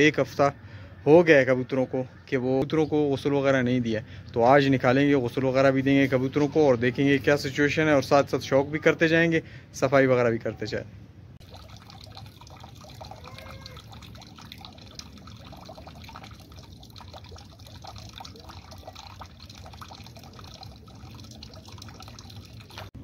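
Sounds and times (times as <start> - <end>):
water running into plastic bucket: 11.4 - 23.0.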